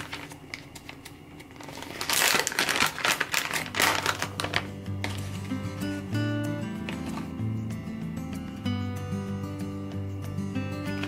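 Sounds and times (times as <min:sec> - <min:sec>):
plastic pouch crinkling: 0:00.0 - 0:06.0, 0:06.8 - 0:07.4
soft background music: 0:00.0 - 0:11.0.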